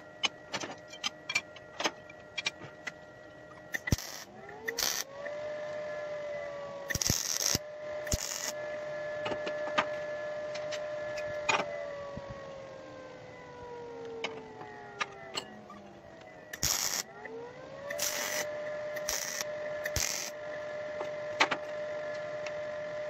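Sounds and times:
angle grinder whine: 0.0 - 23.0.

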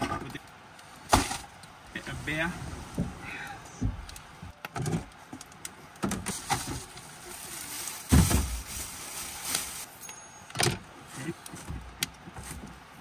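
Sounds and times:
plastic bags rustling: 6.0 - 10.2.

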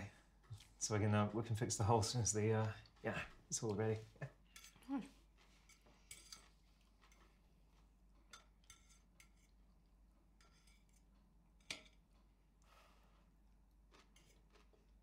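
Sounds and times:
fork clinking on dinner plate: 8.2 - 9.6.

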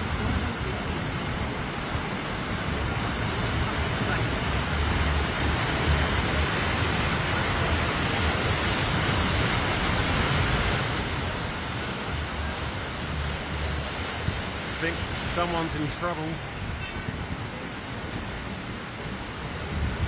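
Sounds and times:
wind buffeting microphone: 0.0 - 15.7, 16.4 - 20.0
surf breaking on rocks: 1.5 - 16.6.

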